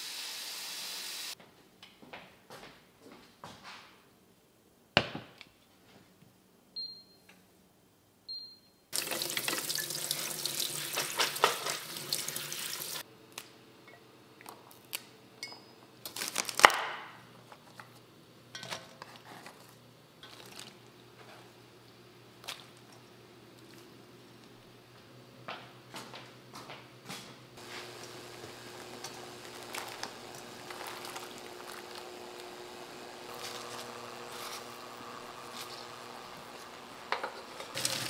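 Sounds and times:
kitchen tap running: 9.0s - 13.0s, 27.6s - 38.0s.

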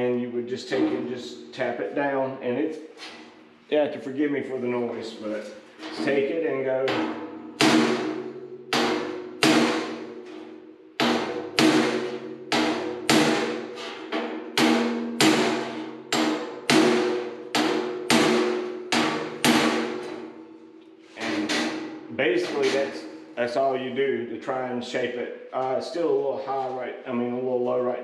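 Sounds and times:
hammer striking sheet steel: 5.9s - 20.6s, 21.2s - 23.2s.

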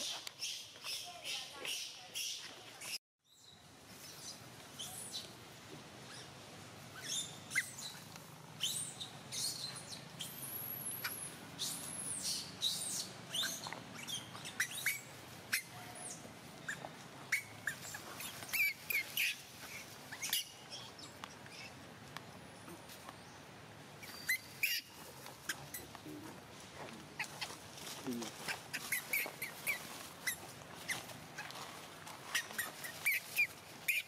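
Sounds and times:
high-pitched animal chirps: 10.2s - 19.4s, 24.0s - 24.9s.

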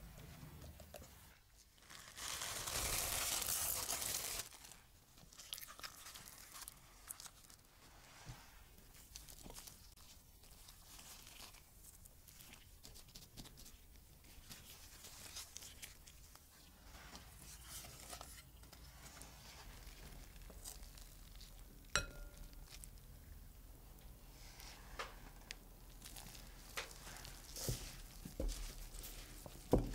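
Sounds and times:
chicken rustling in flour: 0.1s - 21.8s, 24.2s - 29.9s
chopsticks clinking glass bowl: 22.0s - 22.6s.

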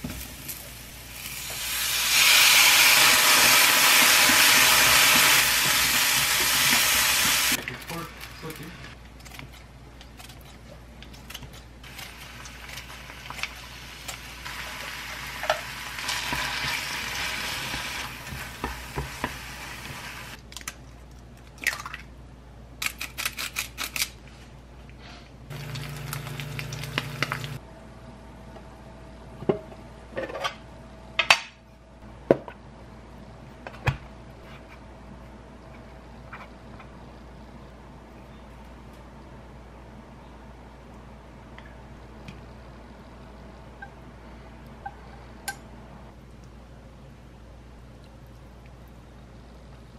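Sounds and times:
food sizzling in oil: 0.0s - 7.6s, 11.9s - 20.4s, 25.5s - 27.6s.

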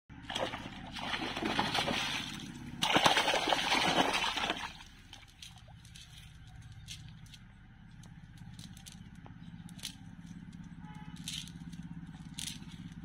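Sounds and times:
fish thrashing and splashing: 0.1s - 6.9s.

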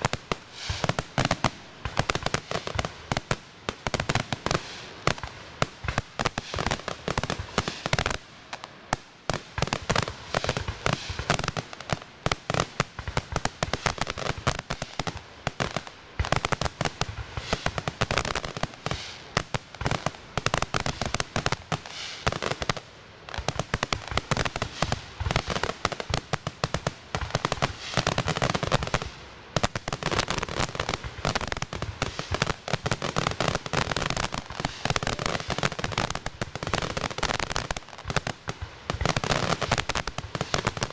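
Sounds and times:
fireworks bursts and bangs: 0.0s - 40.9s.

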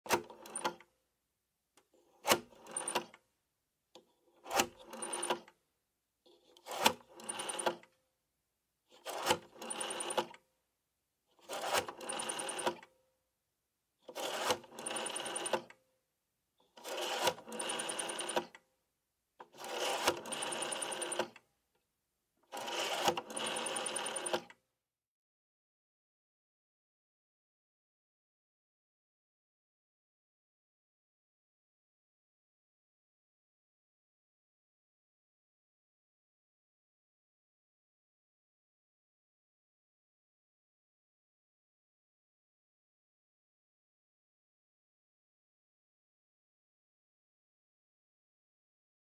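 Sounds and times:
rotary dial clicking and whirring: 6.6s - 7.8s, 14.1s - 15.8s, 22.6s - 24.6s.

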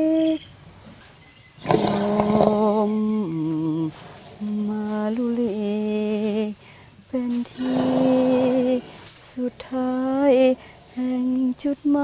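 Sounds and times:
woman singing a lullaby: 0.0s - 0.4s, 2.0s - 12.0s
woman breathing between phrases: 10.6s - 11.0s.

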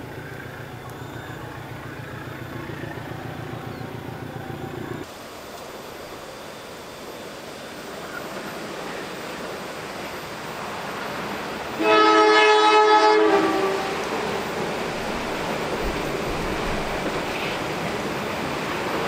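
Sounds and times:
train rumble: 0.0s - 19.0s
diesel locomotive horn: 11.7s - 17.6s.

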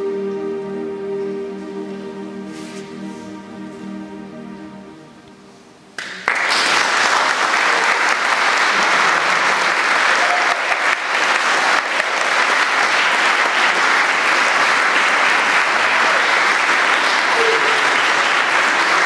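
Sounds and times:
live music: 0.0s - 7.9s, 12.1s - 19.0s
audience applauding: 6.0s - 19.0s.

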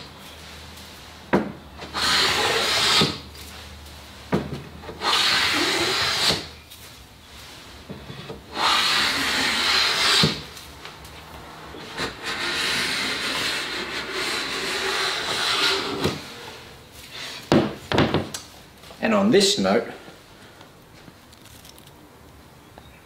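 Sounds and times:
hand plane shaving wood: 1.8s - 3.2s, 4.8s - 6.5s, 8.5s - 10.5s, 11.8s - 16.5s.

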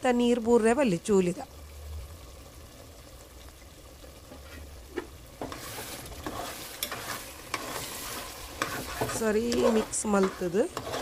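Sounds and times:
light sizzle: 0.0s - 11.0s
spoon scraping and knocking a pot: 4.4s - 11.0s.

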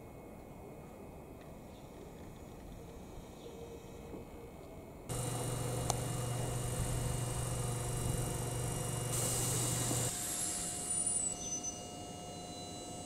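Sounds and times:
electrical hum with hiss: 4.9s - 13.0s.

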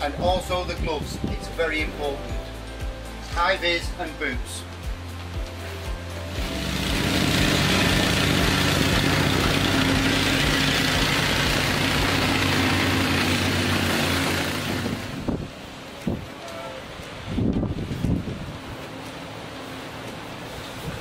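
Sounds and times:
plate compactor engine droning: 6.4s - 15.4s.

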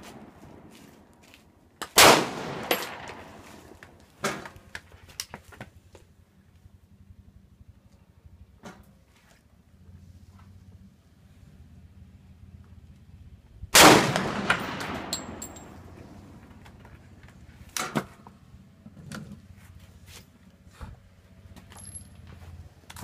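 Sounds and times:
pistol shot echoing: 2.0s - 3.4s, 13.8s - 16.0s.

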